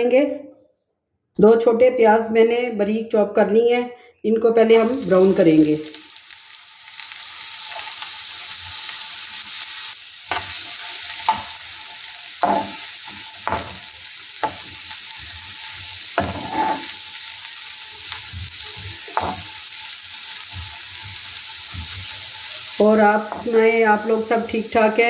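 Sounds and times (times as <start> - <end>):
onions sizzling in hot oil: 4.8 - 25.0
spatula scraping pan: 12.4 - 17.3, 18.0 - 19.6.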